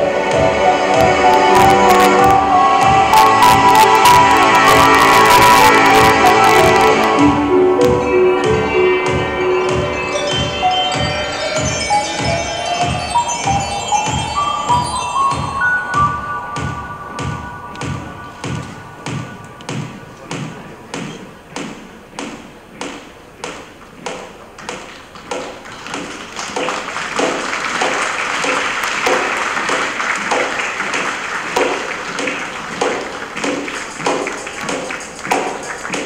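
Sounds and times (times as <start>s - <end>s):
audience applause: 0.0s - 7.2s, 25.6s - 36.0s
music with steady beat: 0.0s - 36.0s.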